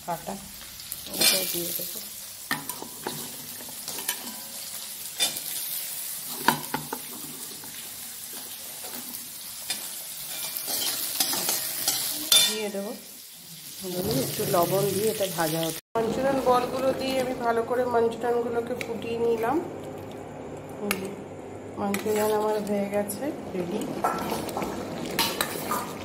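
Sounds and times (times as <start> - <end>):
oil sizzling in a wok: 0.0 - 17.6
metal spoon clinking and scraping: 9.7 - 12.6.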